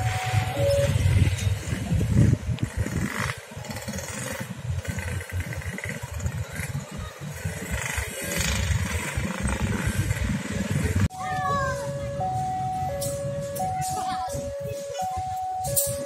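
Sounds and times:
motorcycle engines pulling away: 0:00.0 - 0:11.1.

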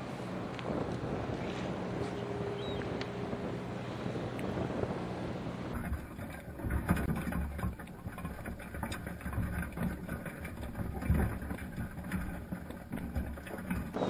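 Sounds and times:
low underwater rumble: 0:00.2 - 0:14.0
crabs clicking and tapping: 0:05.7 - 0:14.0.

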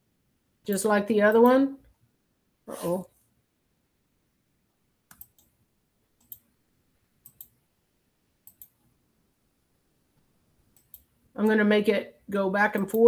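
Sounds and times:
computer mouse clicking: 0:05.1 - 0:05.6, 0:06.2 - 0:06.5, 0:07.2 - 0:07.6, 0:08.4 - 0:08.9, 0:10.7 - 0:11.6, 0:12.8 - 0:13.0.

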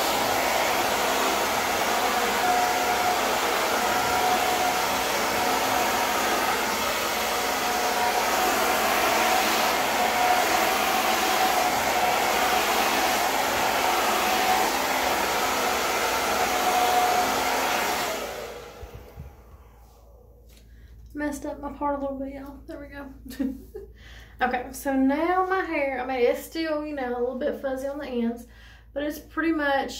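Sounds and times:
hair dryer blowing: 0:00.0 - 0:20.6.

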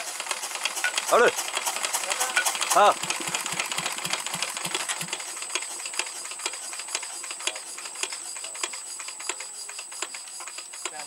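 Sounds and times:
diesel engine clattering: 0:00.0 - 0:11.0.

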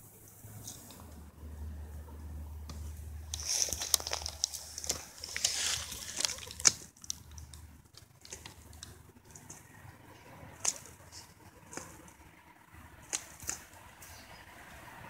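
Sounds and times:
hen pecking clicks: 0:02.6 - 0:14.8
rustling in weeds: 0:03.2 - 0:09.7.

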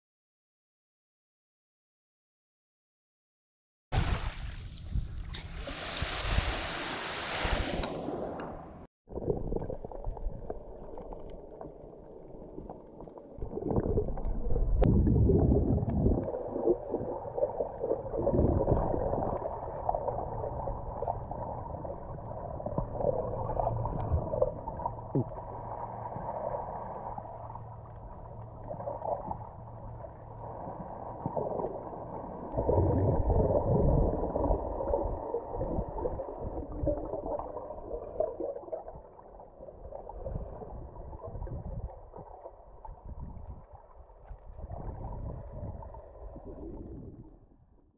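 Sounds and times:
muffled underwater sloshing: 0:04.7 - 0:47.6.

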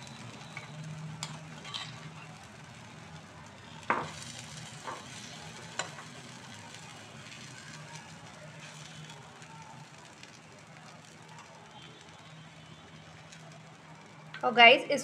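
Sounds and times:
batter sizzling in a pan: 0:00.0 - 0:14.6
metal spoon scraping and tapping pan: 0:00.6 - 0:02.1, 0:04.8 - 0:06.1.

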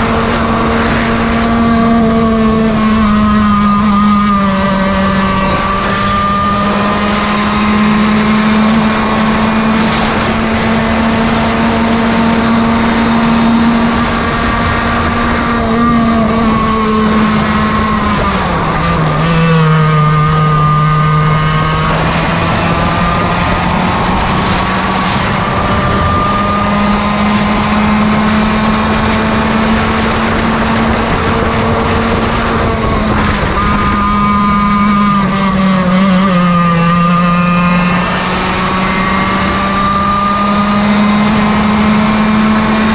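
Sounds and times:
kart engine revving high: 0:00.0 - 0:42.9.

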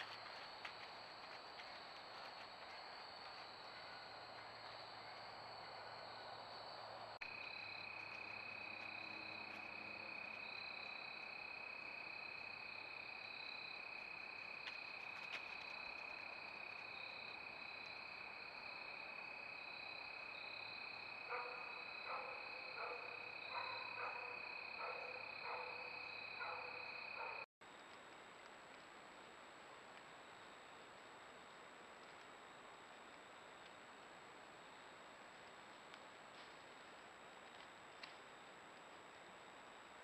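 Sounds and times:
high-pitched insect trill: 0:00.0 - 0:27.5
faint steady tone: 0:00.0 - 0:40.0.

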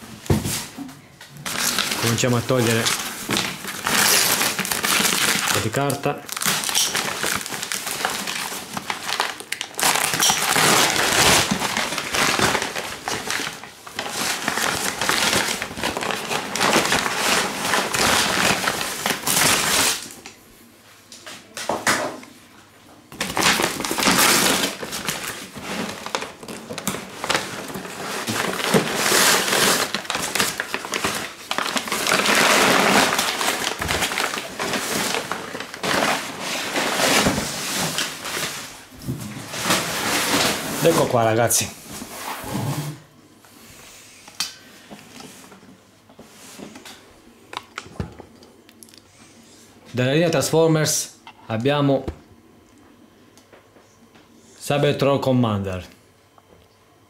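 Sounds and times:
paper crumpling and rustling: 0:01.4 - 0:20.2, 0:23.2 - 0:42.1.

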